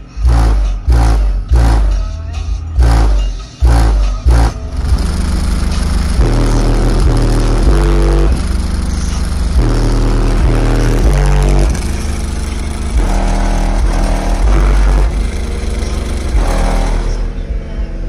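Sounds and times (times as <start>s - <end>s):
bass-heavy music from car speakers: 0.0s - 18.0s.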